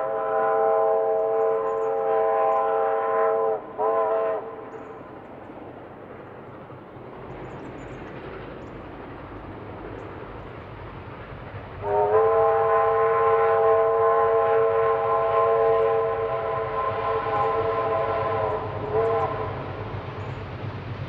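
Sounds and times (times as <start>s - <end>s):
steam locomotive chime whistle: 0.0s - 5.0s, 11.8s - 20.4s.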